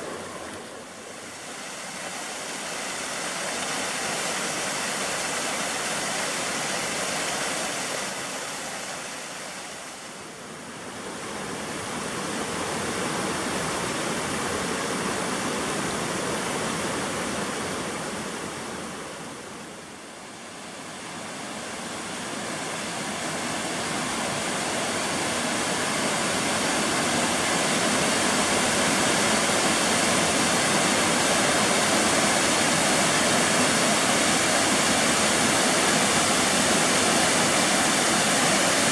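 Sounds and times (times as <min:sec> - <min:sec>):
water rushing over rock: 0:00.0 - 0:10.3, 0:20.9 - 0:38.9.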